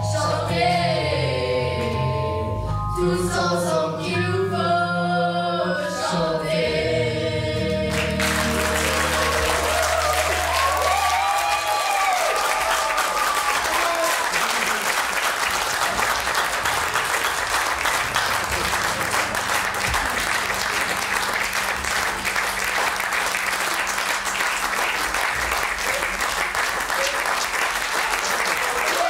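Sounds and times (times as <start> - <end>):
audience applauding: 7.9 - 29.0.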